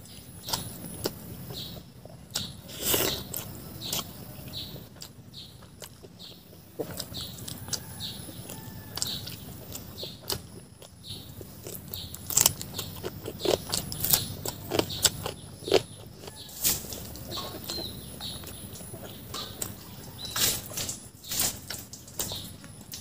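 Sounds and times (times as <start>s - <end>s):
person chewing food: 0.0s - 23.0s.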